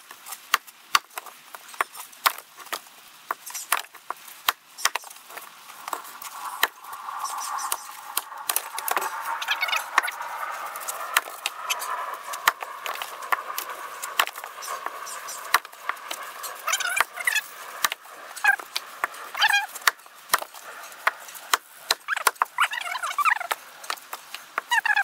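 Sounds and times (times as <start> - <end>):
axe splitting logs: 0.4 - 6.7, 12.4 - 14.4, 17.8 - 22.5.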